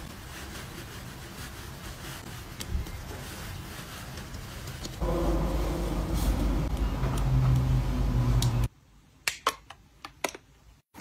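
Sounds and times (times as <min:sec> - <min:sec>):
steady rushing noise with hum: 0:05.0 - 0:08.7.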